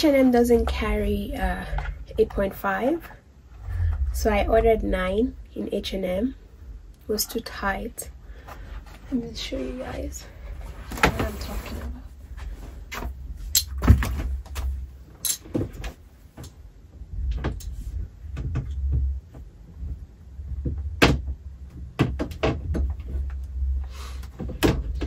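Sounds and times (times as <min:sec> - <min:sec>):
low rumble: 0:00.0 - 0:08.3
knocks and clicks on a shelf: 0:17.2 - 0:23.4, 0:24.4 - 0:25.0.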